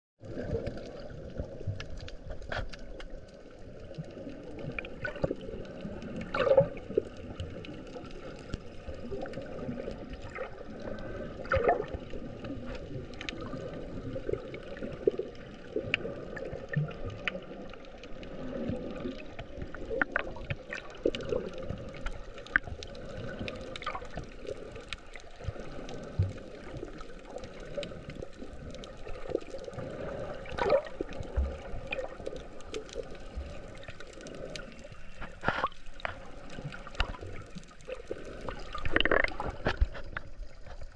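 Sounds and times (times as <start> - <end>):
muffled underwater rush: 0.2 - 40.9
underwater clicks and pops: 19.6 - 21.3, 35.2 - 36.3, 37.0 - 37.4, 38.6 - 40.9.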